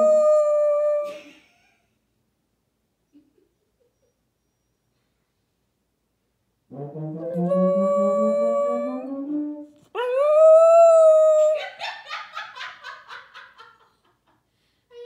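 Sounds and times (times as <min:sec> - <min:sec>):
baritone horn playing low notes: 0:06.7 - 0:09.8.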